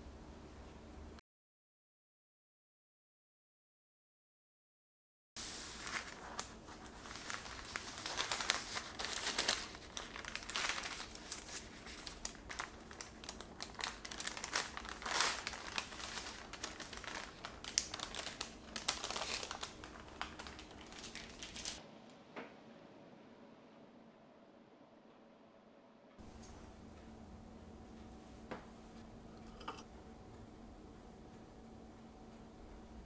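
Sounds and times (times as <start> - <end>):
baking paper rustling and crinkling: 5.4 - 21.8.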